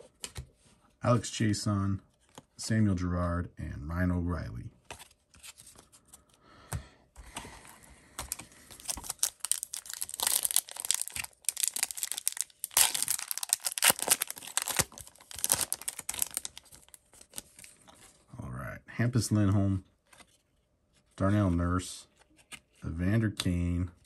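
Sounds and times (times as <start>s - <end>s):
foil wrapper tearing and crinkling: 8.7s - 17.6s.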